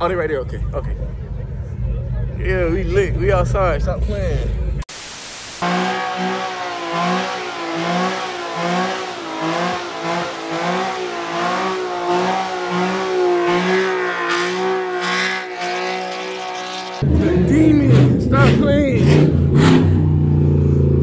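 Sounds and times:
car engine at high revs: 4.9s - 21.0s.

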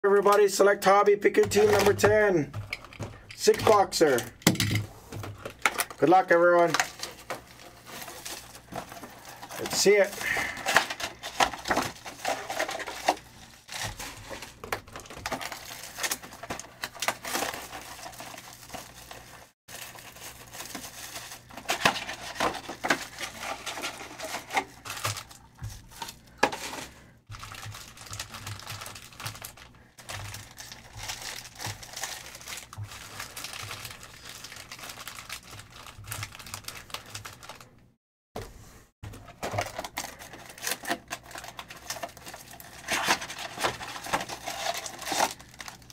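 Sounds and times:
packs crinkling and tearing: 1.3s - 37.8s, 39.1s - 45.9s.

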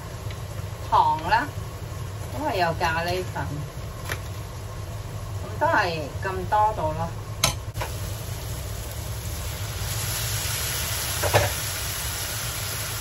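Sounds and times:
food sizzling in wok: 0.0s - 13.0s.

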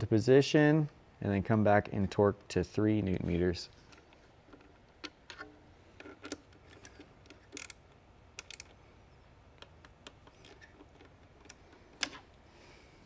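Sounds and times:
hex key clicking on metal bolts: 6.0s - 8.8s.

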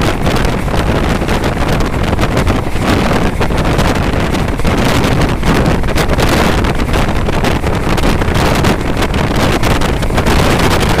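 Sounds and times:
train running rumble: 0.0s - 11.0s
wind buffeting microphone: 0.0s - 11.0s.

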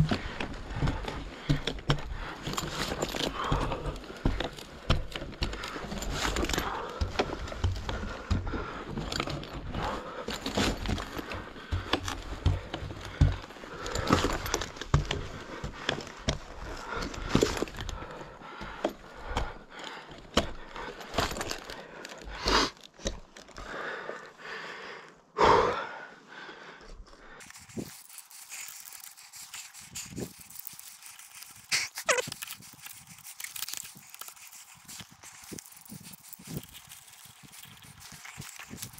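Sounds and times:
climbing gear knocking on wooden pole: 0.0s - 9.7s, 10.4s - 17.7s
man panting heavily: 0.0s - 22.8s, 23.6s - 27.9s.

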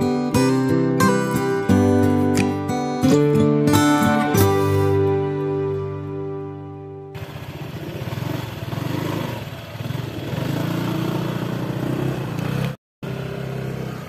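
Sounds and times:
scooter engine running: 7.1s - 14.0s.

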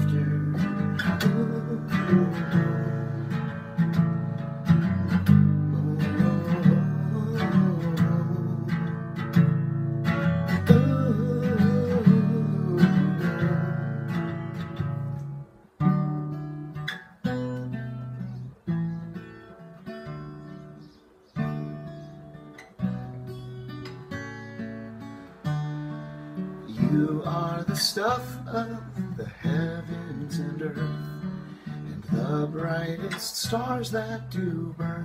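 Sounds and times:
acoustic guitar strumming: 0.0s - 35.0s.

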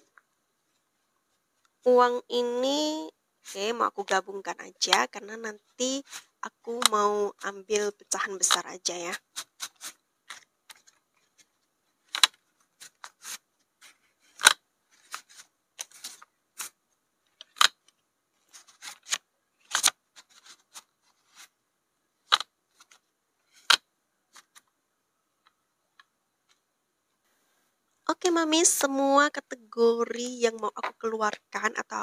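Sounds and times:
banknotes rustling: 3.4s - 21.6s, 22.2s - 24.8s.

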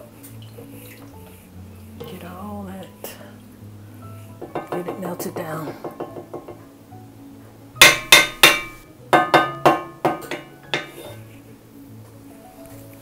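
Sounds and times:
wooden spatula knocking on skillet: 4.4s - 6.7s, 7.8s - 11.1s.

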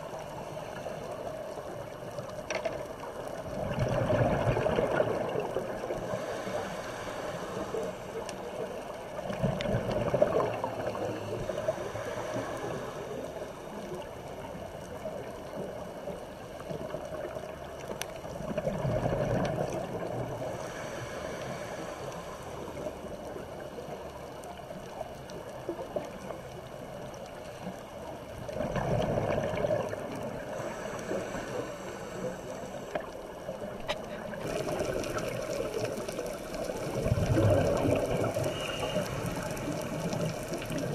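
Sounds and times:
exhaled bubbles rushing underwater: 1.4s - 7.7s, 8.5s - 40.9s
muffled regulator hiss: 6.0s - 8.6s, 20.3s - 23.2s, 30.4s - 33.8s.

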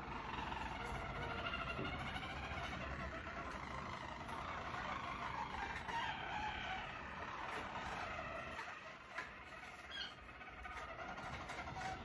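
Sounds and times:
canaries singing rolled trill: 0.0s - 12.0s.

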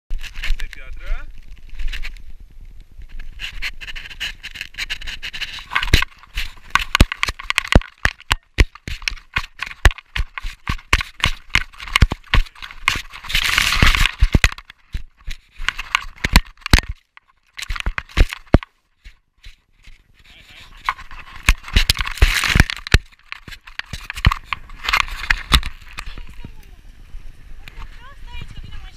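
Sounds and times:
camera knocking and rattling: 3.0s - 26.6s
scraping against camera mount: 3.1s - 26.4s.

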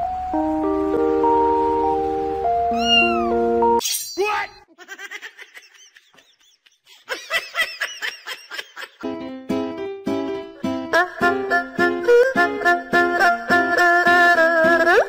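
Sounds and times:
sustained keyboard music: 0.0s - 3.8s, 9.0s - 15.0s
high-pitched calls: 2.6s - 4.3s
plucked ukulele music: 9.5s - 15.0s.

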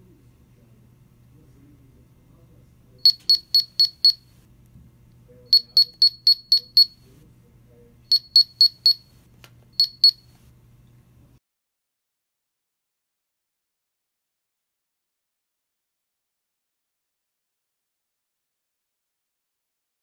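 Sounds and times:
detector short high beeps: 3.1s - 4.2s, 5.5s - 7.0s, 8.1s - 9.1s, 9.8s - 10.2s.

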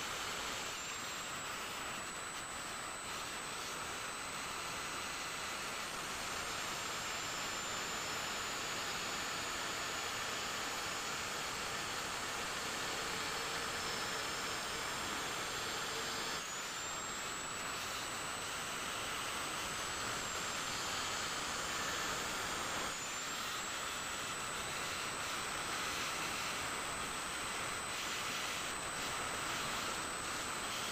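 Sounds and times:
angle grinder grinding metal: 13.1s - 30.9s.

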